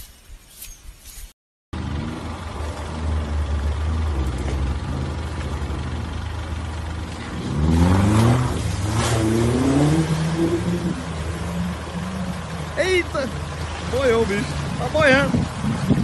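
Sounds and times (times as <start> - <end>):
car engine revving: 1.7 - 16.0
water splashing: 6.9 - 16.0.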